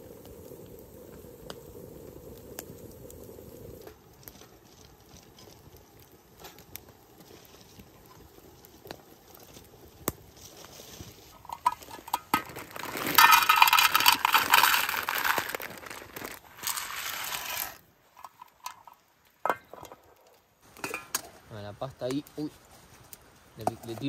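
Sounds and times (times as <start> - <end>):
dry pasta rattling into metal pot: 11.5 - 18.9.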